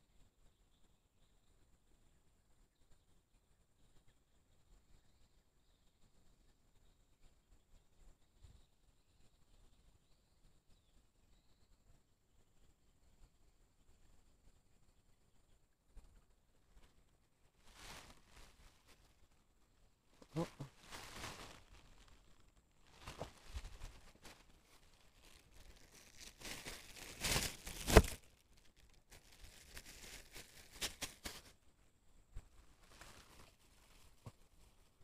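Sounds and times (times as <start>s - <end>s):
plastic bag crinkling: 20.3s - 31.5s.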